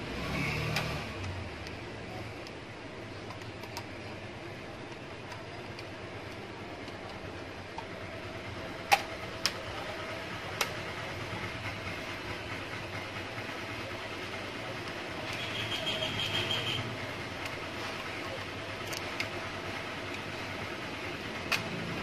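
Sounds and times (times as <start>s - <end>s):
sharp clicks on plastic housing: 8.8s - 9.6s, 21.4s - 21.7s.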